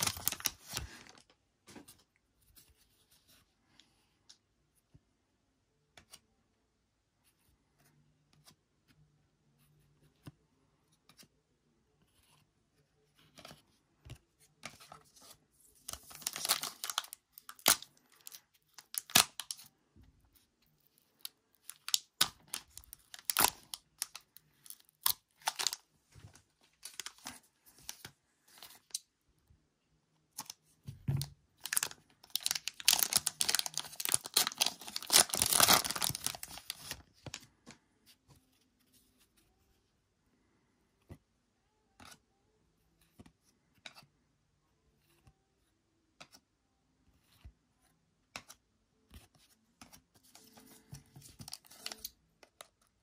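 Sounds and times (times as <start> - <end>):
foil wrapper crinkling and tearing: 0.0 - 1.2, 16.0 - 19.6, 21.2 - 25.8, 31.6 - 37.0.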